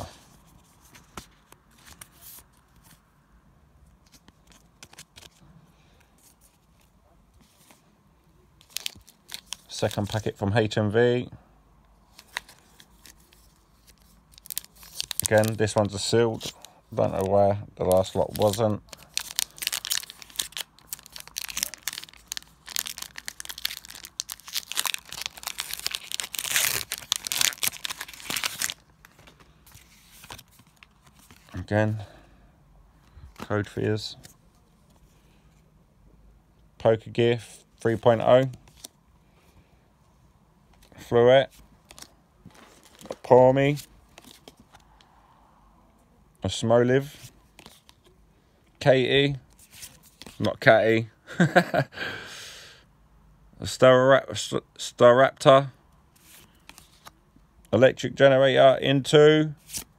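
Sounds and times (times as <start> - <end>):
card rustle: 0.1 - 3.0, 3.9 - 7.8, 8.6 - 10.3, 12.1 - 31.7, 40.7 - 44.9, 47.2 - 48.2, 49.5 - 50.6, 56.2 - 57.2, 59.6 - 59.9
foil wrapper tearing and crinkling: 13.8 - 15.6, 18.0 - 28.9.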